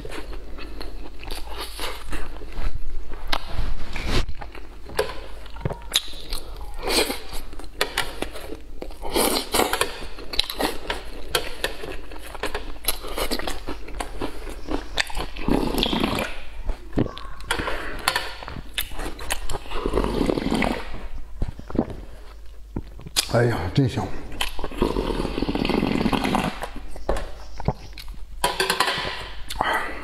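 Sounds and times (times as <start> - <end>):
wet chewing and slurping: 0.0 - 23.3, 24.3 - 29.8
slurping broth from metal tray: 24.6 - 26.7.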